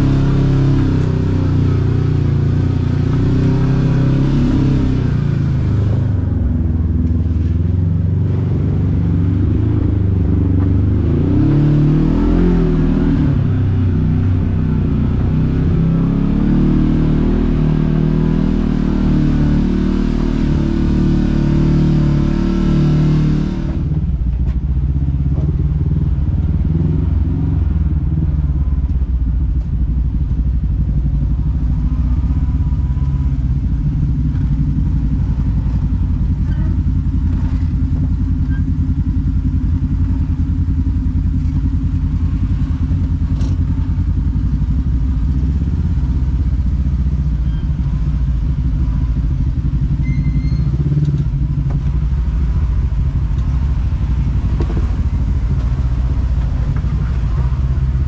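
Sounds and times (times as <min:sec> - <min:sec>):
vehicle engine running: 0:00.0 - 0:58.0
light knocks over rough ground: 0:54.5 - 0:55.0.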